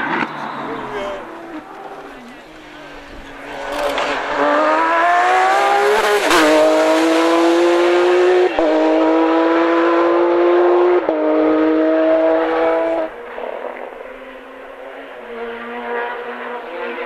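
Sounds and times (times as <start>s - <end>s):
car engine at full throttle: 0.0s - 17.0s
gear shift crack: 0.1s - 4.4s.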